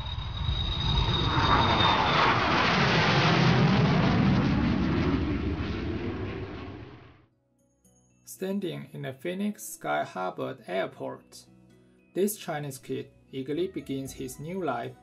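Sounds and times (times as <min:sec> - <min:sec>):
jet airliner passing overhead: 0:00.0 - 0:07.2
high engine whine: 0:00.0 - 0:07.3.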